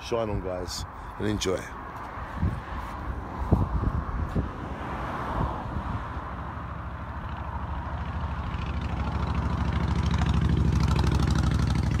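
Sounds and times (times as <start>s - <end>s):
helicopter rotor beating: 8.4s - 12.0s.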